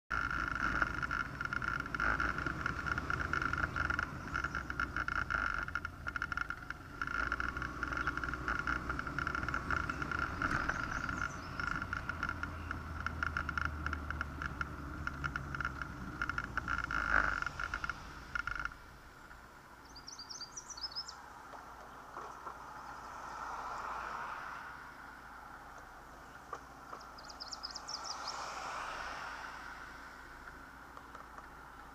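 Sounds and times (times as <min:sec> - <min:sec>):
motorcycle engine and wind drone: 0:00.1 - 0:23.2
car approaching: 0:00.1 - 0:31.9
faint bird chirps: 0:19.8 - 0:21.2, 0:27.0 - 0:28.4.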